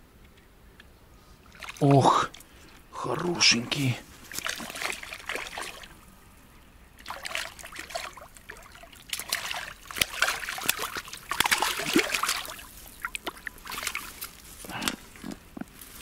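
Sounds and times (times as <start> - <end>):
fish splashing in water: 1.5 - 2.4, 4.3 - 6.0, 7.0 - 14.4.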